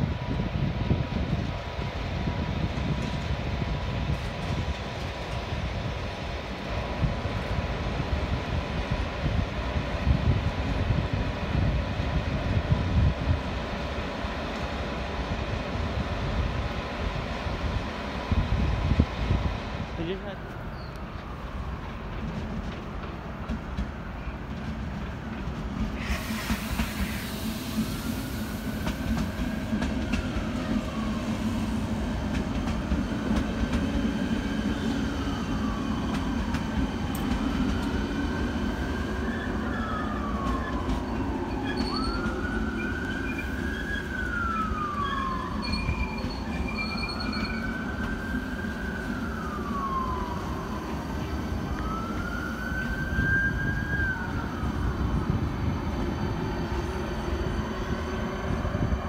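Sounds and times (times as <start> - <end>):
train wheels rumbling: 0.0 - 59.0
siren wailing: 37.8 - 59.0.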